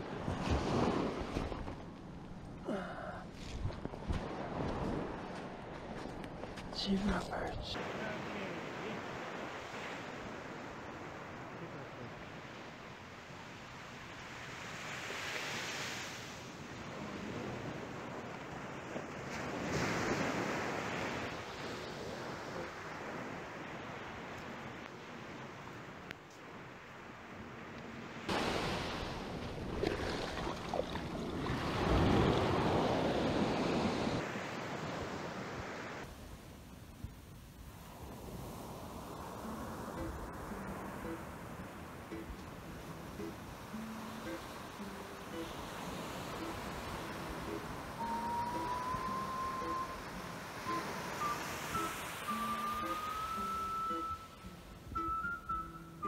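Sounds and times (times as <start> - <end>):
surf washing up a beach: 0.0 - 1.7, 4.0 - 55.1
surf rushing around legs: 0.0 - 1.9, 28.3 - 36.2.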